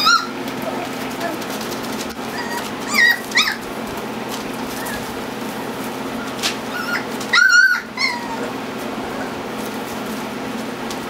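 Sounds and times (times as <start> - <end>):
puppy high-pitched yelp: 0.0 - 0.9, 2.3 - 3.7, 6.7 - 8.5
puppies squeaking: 0.0 - 9.4.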